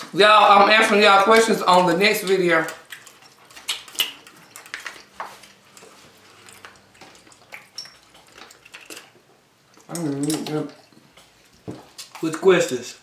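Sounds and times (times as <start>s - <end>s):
dishes and cutlery clinking: 7.4s - 9.1s.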